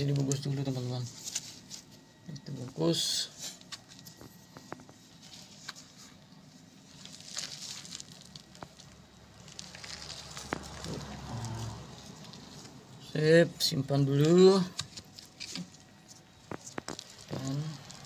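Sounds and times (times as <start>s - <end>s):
faint low hum: 0.0s - 18.0s
cloth rustling: 2.8s - 13.1s
small clicks and crackles: 3.6s - 12.8s, 14.2s - 18.0s
hands rubbing rough bark: 4.5s - 12.9s.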